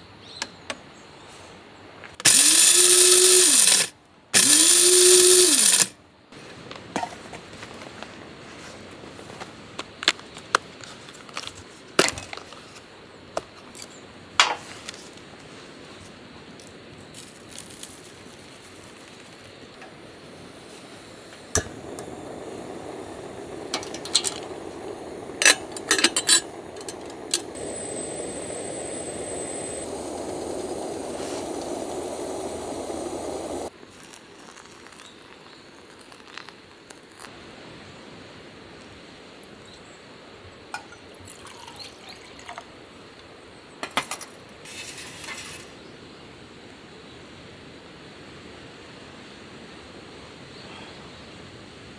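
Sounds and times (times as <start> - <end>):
gas stove burning: 2.2 - 5.9, 17.5 - 35.0
stove ignition click: 21.3 - 33.7.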